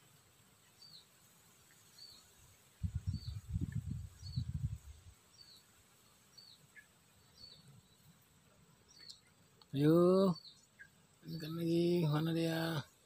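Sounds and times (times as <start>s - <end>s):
bird chirping: 0.6s - 13.0s
wind buffeting microphone: 2.8s - 5.2s.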